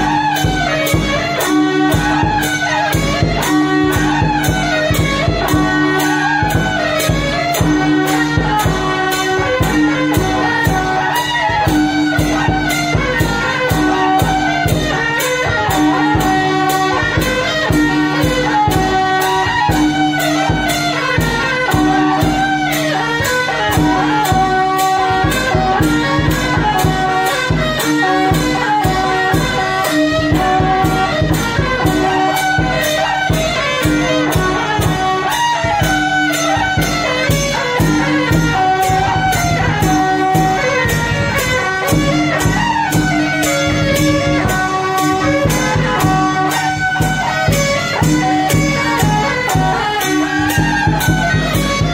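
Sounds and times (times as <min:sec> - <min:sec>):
drum and cymbal strokes: 0:00.0 - 0:51.9
reed-horn melody: 0:00.0 - 0:51.9.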